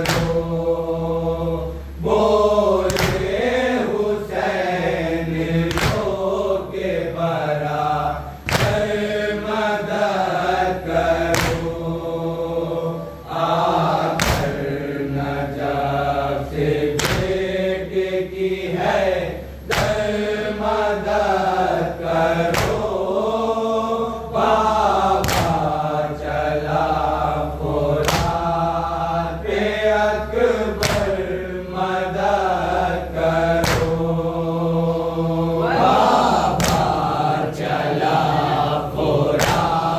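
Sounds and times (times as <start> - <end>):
chest-beating slaps: 0.0 - 0.6, 2.8 - 3.5, 5.7 - 6.3, 8.4 - 9.1, 11.2 - 11.9, 14.0 - 14.8, 17.0 - 17.5, 19.6 - 20.2, 22.5 - 23.0, 25.2 - 25.8, 28.0 - 28.5, 30.8 - 31.3, 33.6 - 34.1, 36.5 - 37.1, 39.3 - 39.9
men chanting together: 0.0 - 39.9.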